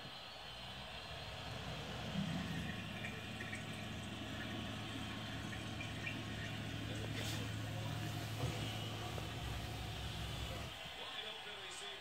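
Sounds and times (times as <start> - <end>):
dishwasher pump hum: 0.8 - 10.8
water spraying inside dishwasher: 1.2 - 10.8.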